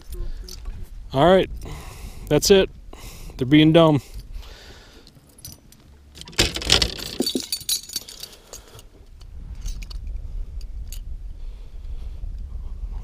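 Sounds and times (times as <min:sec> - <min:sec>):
metal lure hardware jangling: 0:05.0 - 0:08.9.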